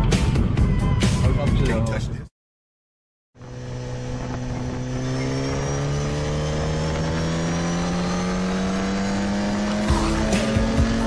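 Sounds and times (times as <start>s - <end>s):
motorcycle engine accelerating: 3.4s - 11.0s.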